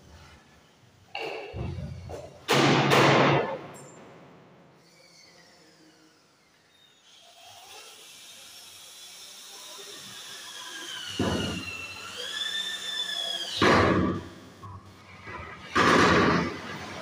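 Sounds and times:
cordless drill whining: 9.2 - 13.6.

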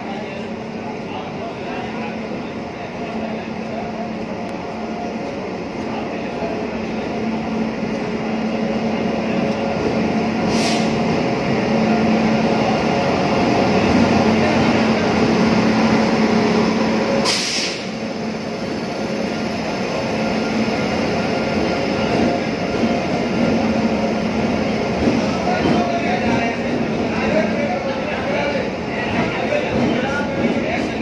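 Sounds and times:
short hisses: 10.5 - 11.0, 17.2 - 18.0.

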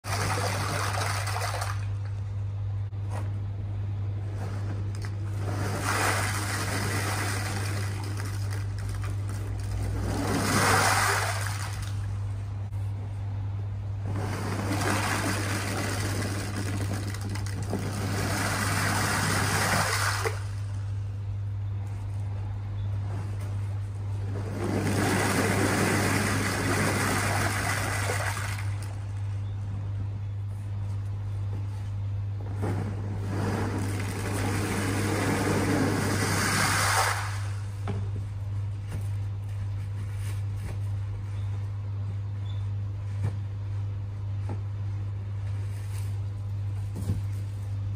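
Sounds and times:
steady low hum: 0.0 - 47.9
plastic balls pouring and clattering: 15.2 - 18.2.

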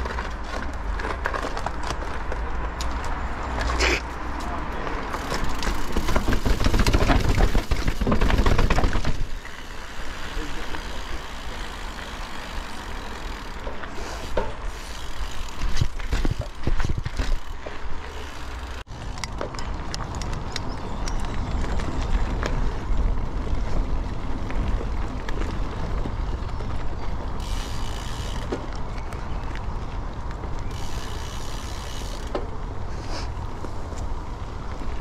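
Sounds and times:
bicycle rolling noise: 0.0 - 35.0
rattles and knocks: 5.4 - 9.4.

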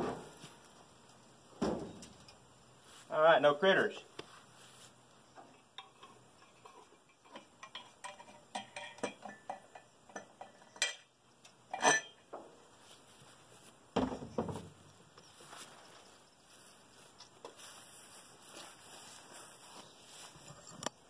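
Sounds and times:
small metallic clicks and rattles: 5.5 - 12.2
metal clanks: 5.8 - 11.1, 11.7 - 12.3.

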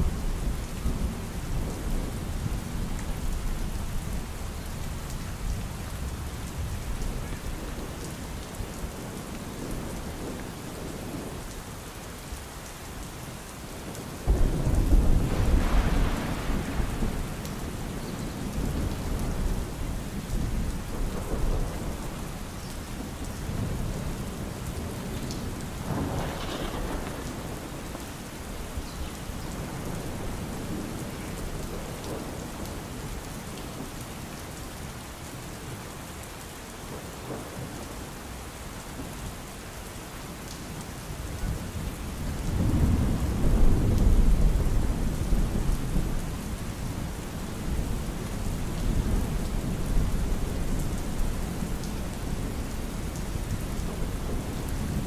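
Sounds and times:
steady rain: 0.0 - 55.0
thunder: 14.3 - 19.7, 25.8 - 31.0, 42.5 - 46.2.

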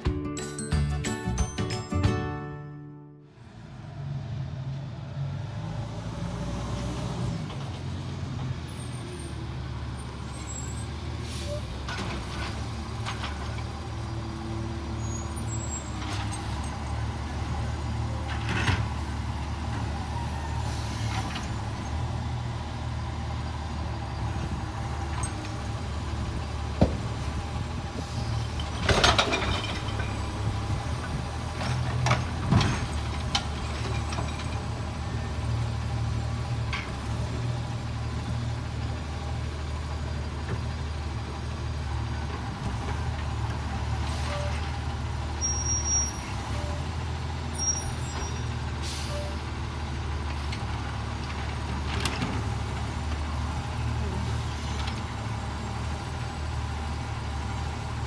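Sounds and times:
knocks and clanks of truck arm: 26.8 - 27.2, 28.6 - 30.2, 31.1 - 34.6.

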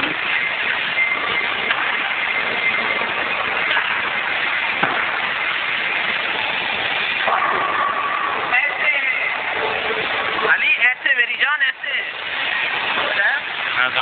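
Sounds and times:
bowling alley rumbling din: 0.0 - 10.6.

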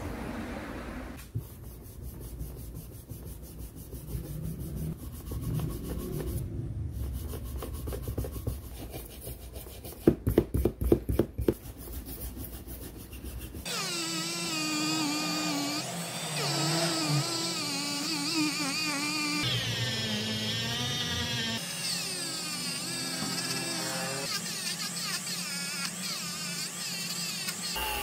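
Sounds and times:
rotary tool whining: 13.6 - 28.0.

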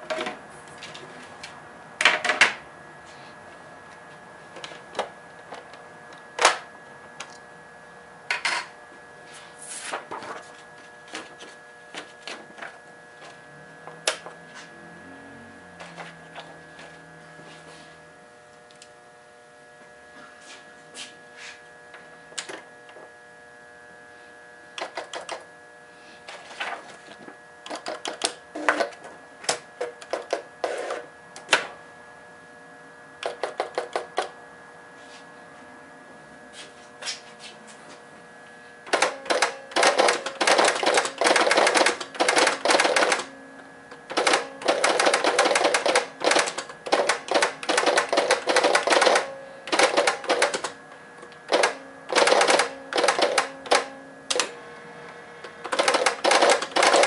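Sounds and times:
electrical hum: 0.0 - 57.0
faint low whirr: 0.0 - 57.0
typewriter mechanical clicks: 24.8 - 25.4, 27.6 - 28.9, 33.2 - 34.3, 38.9 - 43.3, 44.1 - 50.8, 51.5 - 54.5, 55.6 - 57.0
rapid clicking: 55.7 - 57.0.

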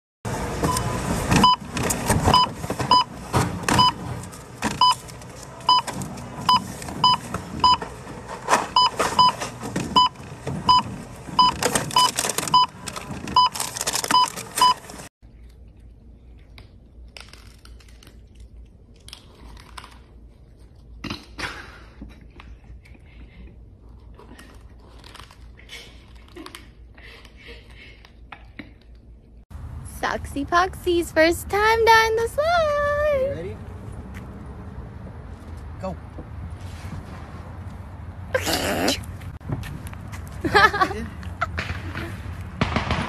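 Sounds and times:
barcode scanner beeping: 10.0 - 12.8
packaging clatter and rustling: 11.6 - 15.1
cats crunching dry kibble: 15.3 - 21.0, 22.4 - 26.8.

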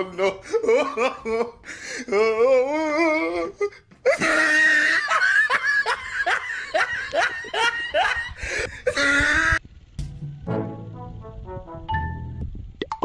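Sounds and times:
person laughing hard: 0.0 - 9.6
high-pitched vocal cry: 8.9 - 9.6.

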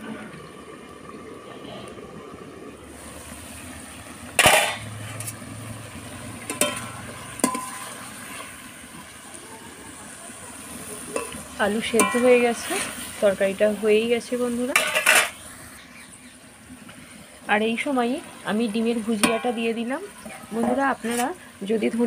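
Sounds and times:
metal utensils clanking on a pan: 4.4 - 5.4, 6.4 - 8.6, 11.1 - 13.0, 14.6 - 15.4, 19.1 - 21.4.

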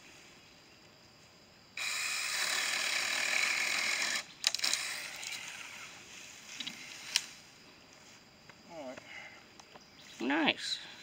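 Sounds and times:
electric chainsaw cutting wood: 1.8 - 5.8.

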